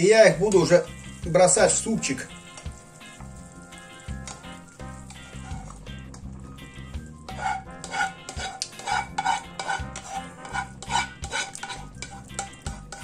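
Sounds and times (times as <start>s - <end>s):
spoon scraping a frying pan: 4.2s - 6.2s, 7.2s - 13.0s.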